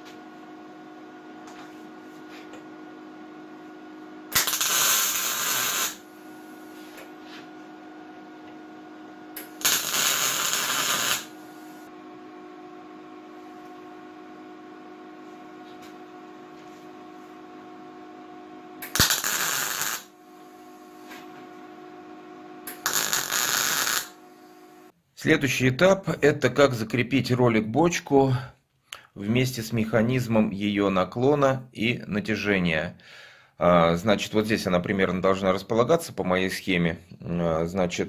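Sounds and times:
steady hum: 0.0 - 28.0
welding arc crackling: 4.3 - 6.5, 9.4 - 11.9, 18.8 - 20.2, 22.7 - 24.2.

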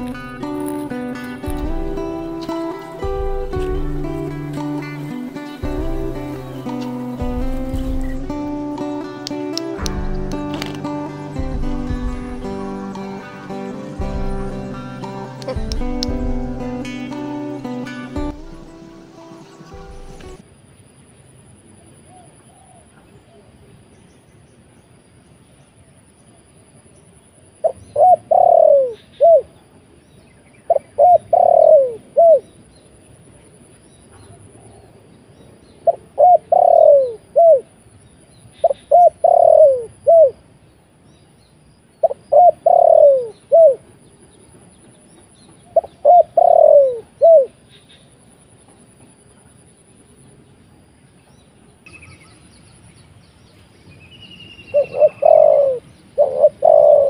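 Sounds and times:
dove cooing: 0.0 - 20.4, 27.6 - 29.5, 30.7 - 32.4, 35.8 - 37.7, 38.6 - 40.4, 42.0 - 43.8, 45.7 - 47.6, 54.7 - 57.0
high insect drone: 0.0 - 22.2.

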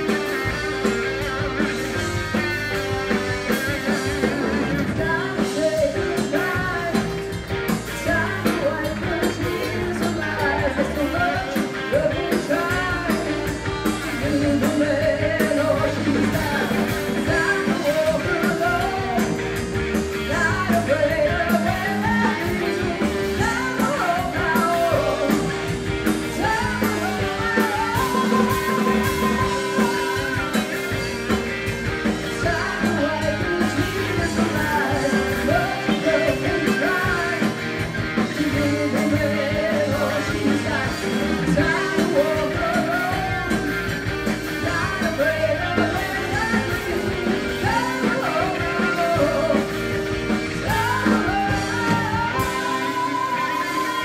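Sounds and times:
live rock band: 0.0 - 54.0
woman singing: 2.7 - 31.2, 32.1 - 54.0.

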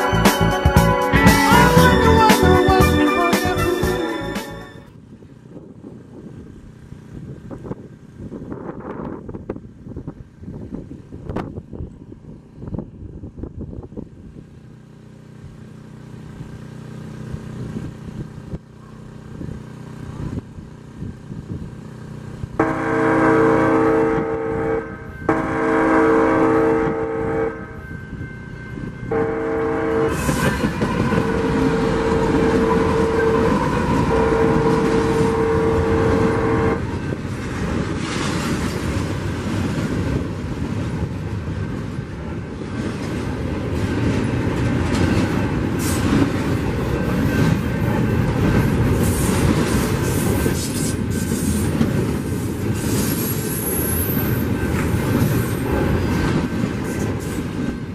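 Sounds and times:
locomotive air horn blasts: 0.0 - 4.9, 22.6 - 37.0
train cars rumbling and clattering: 22.5 - 57.9.

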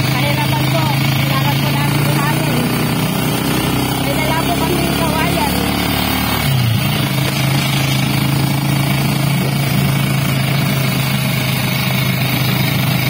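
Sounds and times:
road and wind noise: 0.0 - 13.0
small motorcycle engine running: 0.0 - 13.0.

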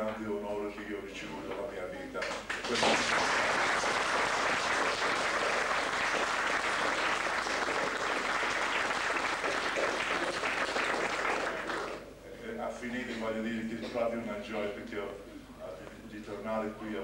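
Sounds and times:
audience applauding: 2.2 - 12.0.

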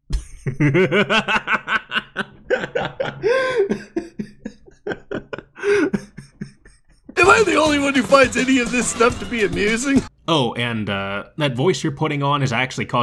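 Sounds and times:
man laughing hard: 0.2 - 8.0.

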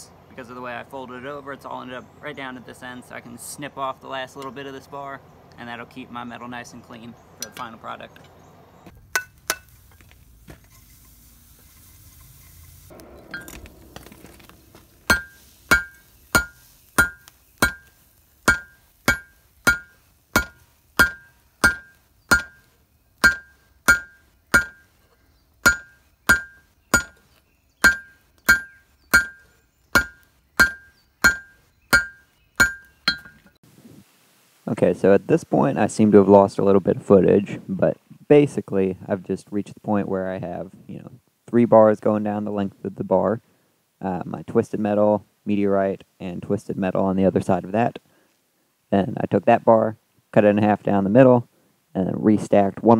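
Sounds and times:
hammer striking steel on anvil: 7.4 - 7.7, 9.1 - 9.7, 15.1 - 24.9, 25.6 - 27.2, 27.8 - 33.5
faint hiss: 8.9 - 28.3, 33.5 - 52.9.

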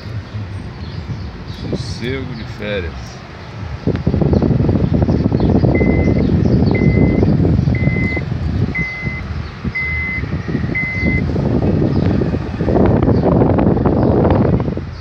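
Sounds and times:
car rumble inside cabin: 0.0 - 15.0
wind on microphone: 0.0 - 15.0
electronic warning beeps: 5.7 - 11.2.

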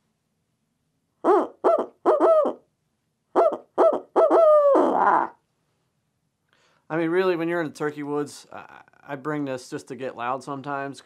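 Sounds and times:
owl call hoots: 1.2 - 2.6, 3.4 - 5.4.

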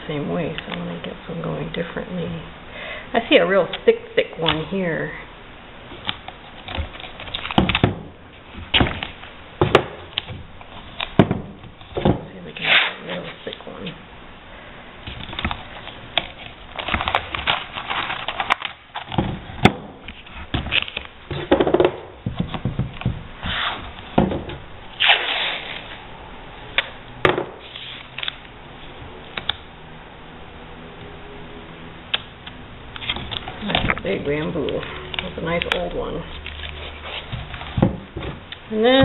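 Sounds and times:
tape rustling and crackling: 5.9 - 14.0, 15.0 - 26.1, 27.6 - 29.6, 32.1 - 39.0.

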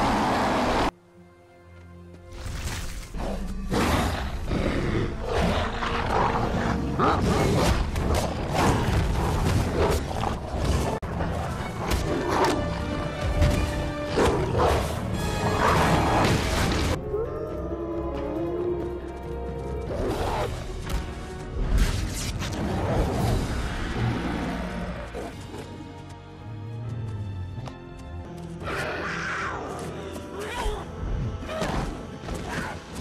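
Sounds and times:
dramatic music: 0.0 - 33.0
wolves growling and roaring: 3.2 - 21.2.

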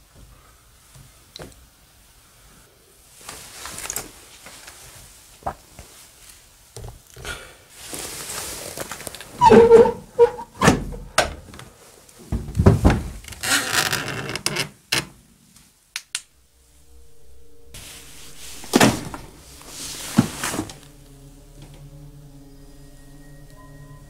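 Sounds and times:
door squeak: 9.4 - 11.1
door scraping: 9.4 - 11.2, 17.8 - 20.9.

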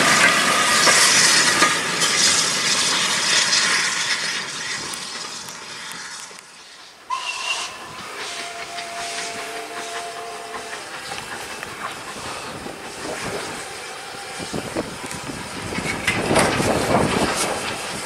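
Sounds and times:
steam locomotive approaching: 0.0 - 18.0
train wheels on rails: 0.0 - 18.0
steam whistle: 7.1 - 11.8.

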